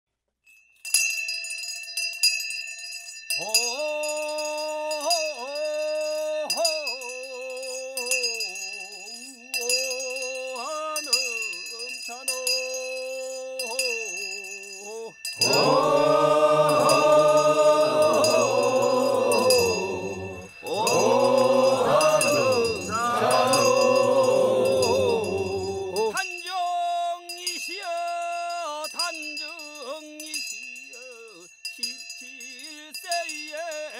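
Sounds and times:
steady high ringing tone: 0:00.8 - 0:33.5
solo chanting voice: 0:12.2 - 0:27.2
male voices chanting: 0:14.8 - 0:27.1.

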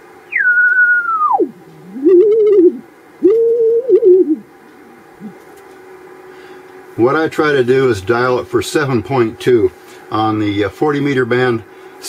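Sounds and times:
radio receiver whistling: 0:00.3 - 0:04.4.

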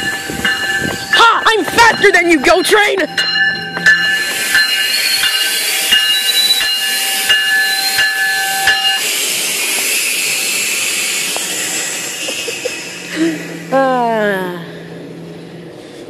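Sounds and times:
train brakes squealing: 0:00.0 - 0:13.9
loud high hiss: 0:04.0 - 0:13.8.

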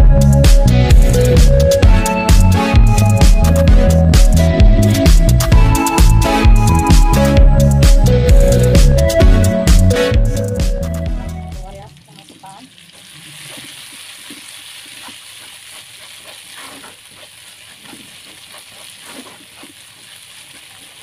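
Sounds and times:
electronic intro music: 0:00.0 - 0:11.7.

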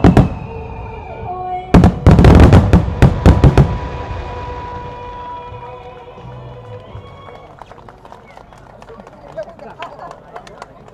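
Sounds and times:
fireworks bursting: 0:00.0 - 0:01.1, 0:01.7 - 0:06.4.

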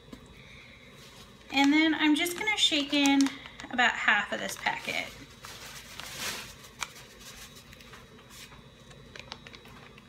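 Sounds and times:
seasoning rustling from packet: 0:04.2 - 0:08.4.

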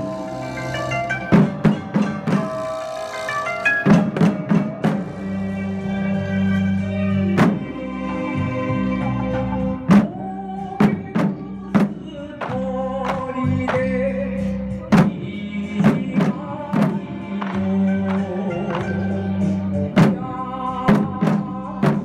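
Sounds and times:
wavering held melody: 0:00.0 - 0:07.2.

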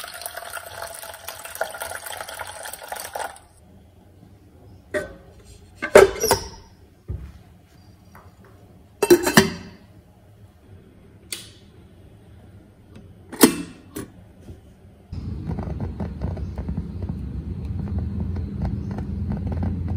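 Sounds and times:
metal pot clanking into cooker: 0:04.9 - 0:06.7, 0:09.0 - 0:09.8
glass lid clinking: 0:09.0 - 0:09.8
cooker switch click: 0:11.3 - 0:11.6.

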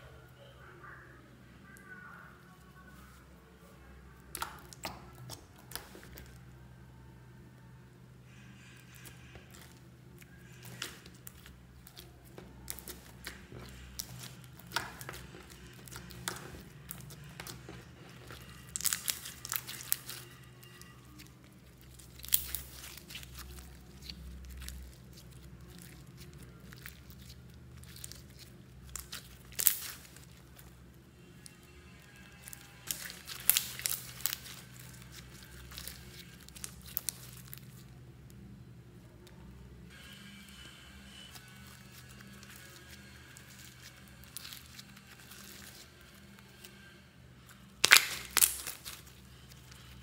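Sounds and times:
faint low hum: 0:00.0 - 0:50.0
slime crackling and popping: 0:04.2 - 0:06.4, 0:08.8 - 0:38.0, 0:41.2 - 0:46.8, 0:47.4 - 0:50.0.

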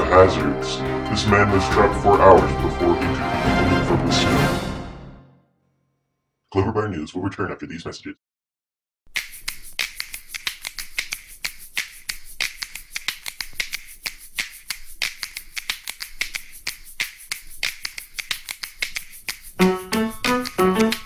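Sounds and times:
rapid sharp clicks: 0:09.1 - 0:21.0.

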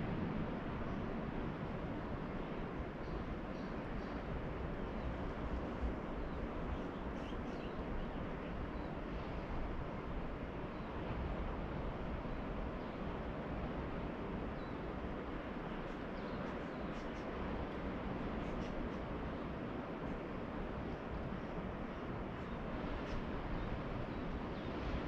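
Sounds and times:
distant ocean surf: 0:00.0 - 0:25.0
faint bird chirps: 0:06.2 - 0:08.9.

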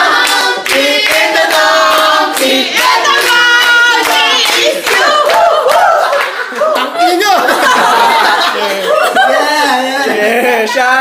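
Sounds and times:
group singing in chorus: 0:00.0 - 0:06.2
hand claps: 0:00.2 - 0:06.4.

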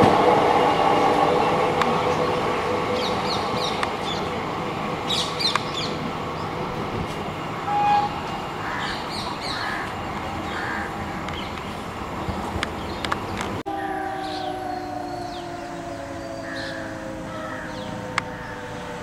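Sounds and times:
train coaches rumbling: 0:00.0 - 0:19.0
brief steady tone: 0:07.7 - 0:08.2
crows cawing: 0:08.6 - 0:09.9, 0:10.5 - 0:10.9, 0:16.3 - 0:18.7.

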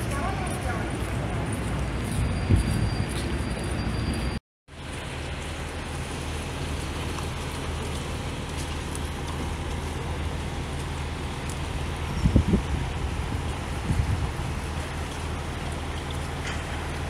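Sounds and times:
low engine drone: 0:00.0 - 0:17.0
rain hiss: 0:04.7 - 0:17.0.

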